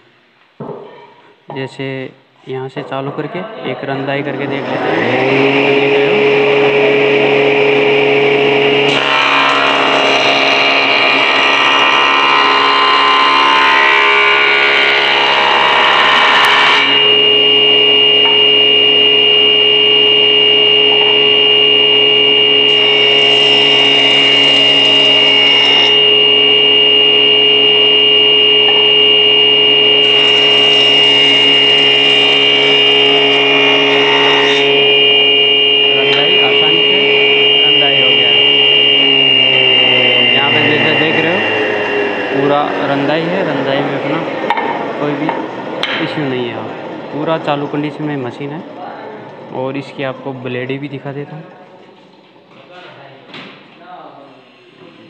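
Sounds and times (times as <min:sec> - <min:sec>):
wood planer motor whine: 0:03.8 - 0:50.8
planer cutting wooden board: 0:04.3 - 0:47.7.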